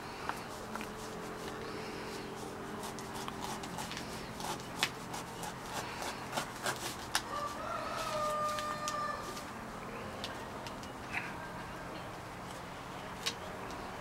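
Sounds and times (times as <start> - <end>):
knife cracking fruit husk: 2.8 - 7.3.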